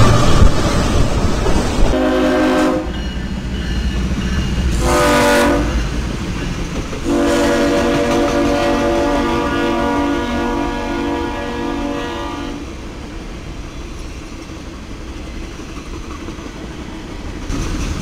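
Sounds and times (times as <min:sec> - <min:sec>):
train rumbling past: 0:00.0 - 0:18.0
train air horn blasts: 0:01.9 - 0:03.1, 0:04.7 - 0:05.8, 0:07.0 - 0:12.8.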